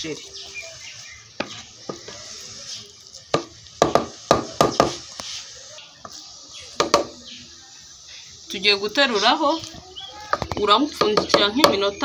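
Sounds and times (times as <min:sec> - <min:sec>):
wooden spoon knocking a metal pot: 0:03.3 - 0:05.0, 0:06.8 - 0:07.2, 0:10.3 - 0:12.0.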